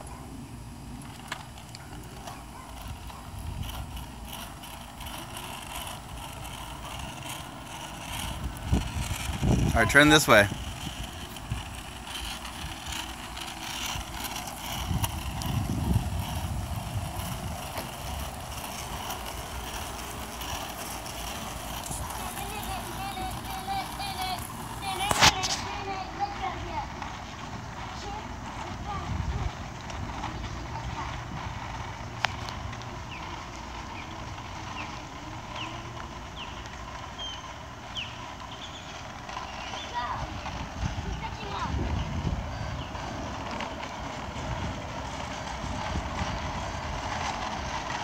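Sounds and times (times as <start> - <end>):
wheels rolling on asphalt: 0.0 - 48.0
wind on microphone: 5.6 - 25.8, 28.6 - 31.8, 39.3 - 48.0.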